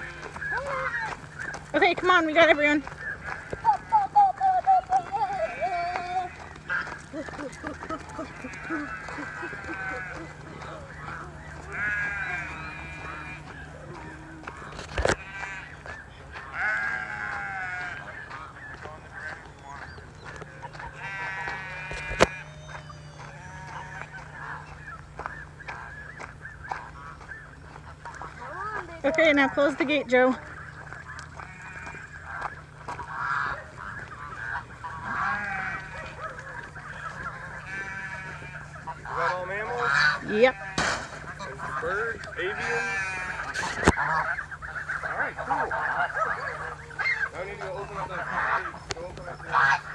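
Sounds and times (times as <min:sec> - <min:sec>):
sheep bleating: 0:00.0 - 0:18.1, 0:20.6 - 0:25.3, 0:31.2 - 0:44.2
geese honking: 0:00.0 - 0:49.9.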